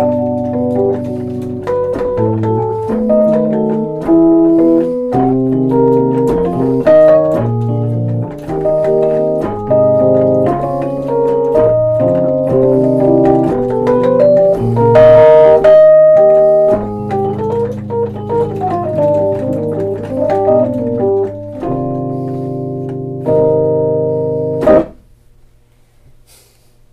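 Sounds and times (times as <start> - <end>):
electric piano chords: 0.0 - 25.0.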